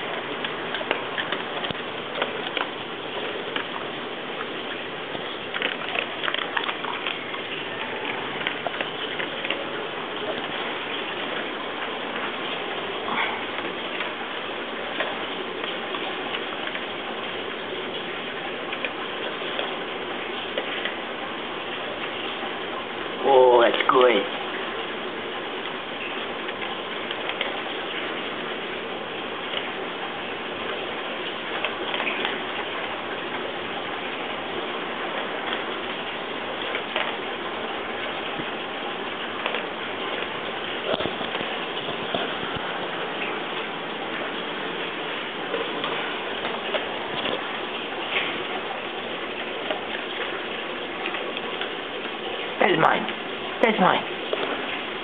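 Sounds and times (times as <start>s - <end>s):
dog crunching kibble: 0.0s - 11.6s
steady background hiss: 0.0s - 55.0s.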